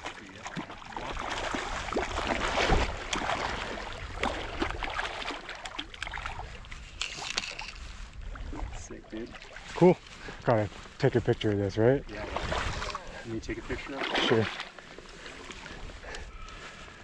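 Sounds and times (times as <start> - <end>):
fish thrashing and splashing water: 0.0 - 9.8, 12.2 - 15.9.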